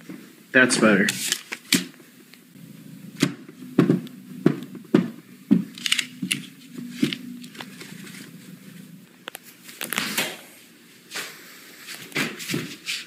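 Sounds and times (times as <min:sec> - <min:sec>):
faint steady hum: 0:00.0 - 0:12.1
paper banknotes crinkling: 0:01.1 - 0:01.9.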